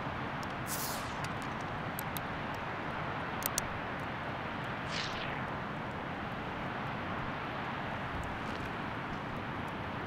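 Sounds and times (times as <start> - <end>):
steady rushing noise: 0.0 - 10.0
brief falling hiss: 0.7 - 1.3.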